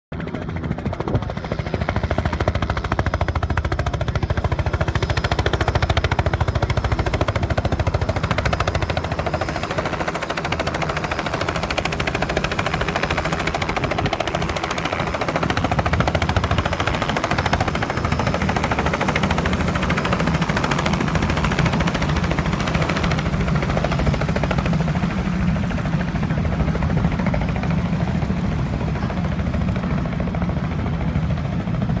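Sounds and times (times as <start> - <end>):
helicopter rotor chopping: 0.1 - 32.0.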